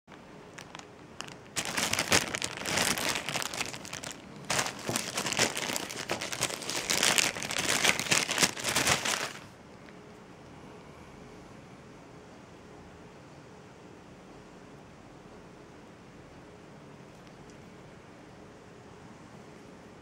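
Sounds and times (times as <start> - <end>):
plastic bag crinkling: 0.1 - 9.5.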